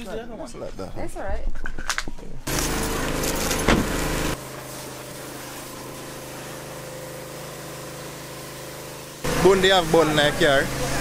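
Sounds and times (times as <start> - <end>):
pressure washer running: 2.5 - 11.0.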